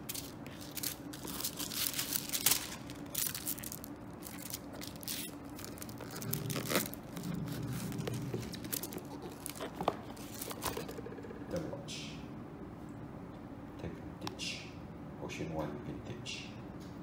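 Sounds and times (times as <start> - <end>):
paper wrapping crinkling: 0.0 - 11.0
handling of box: 0.1 - 11.0.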